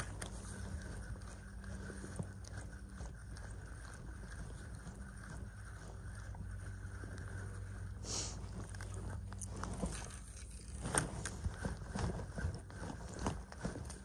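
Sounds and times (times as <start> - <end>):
fishing reel clicking: 0.0 - 4.4
movement on dry grass: 0.0 - 14.0.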